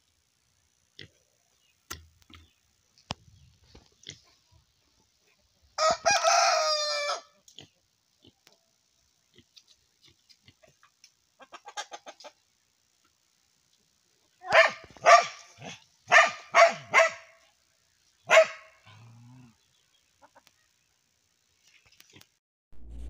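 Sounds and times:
dog barking: 0:14.4 - 0:17.4, 0:18.3 - 0:19.0.

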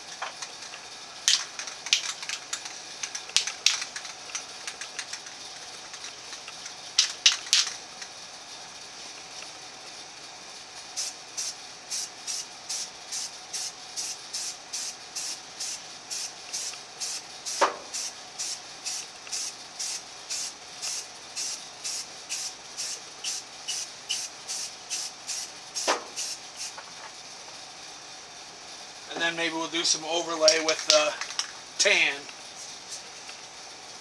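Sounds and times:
spray paint can hissing: 0:00.0 - 0:08.2, 0:11.0 - 0:26.9, 0:32.5 - 0:33.4
sharp clicks: 0:00.1 - 0:08.1.

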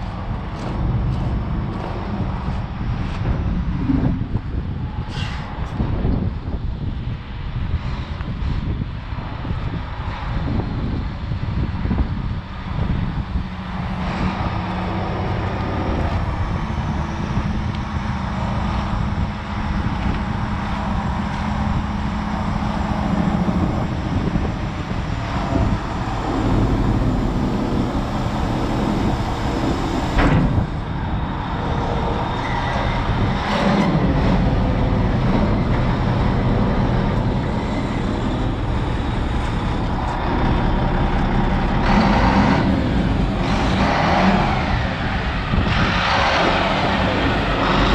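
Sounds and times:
diesel engine idling: 0:11.5 - 0:47.9.

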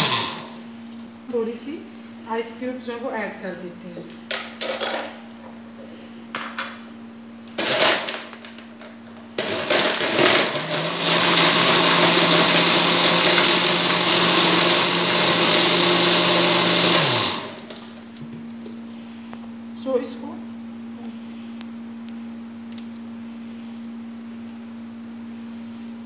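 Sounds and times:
blender motor running: 0:00.0 - 0:00.7, 0:07.5 - 0:08.4, 0:09.4 - 0:18.0
ice clattering: 0:09.4 - 0:18.0.

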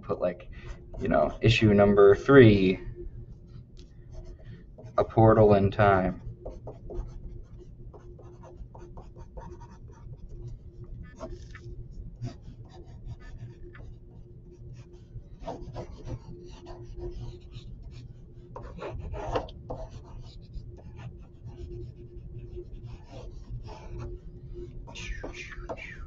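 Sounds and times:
faint steady hum: 0:00.0 - 0:26.0
pencil scratching on paper: 0:03.5 - 0:11.6, 0:12.2 - 0:14.0, 0:14.8 - 0:26.0.

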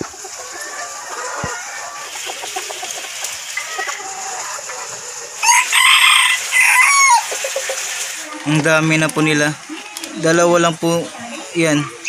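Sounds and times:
chickens clucking softly: 0:00.0 - 0:10.4
rooster crowing loudly: 0:05.4 - 0:07.3.

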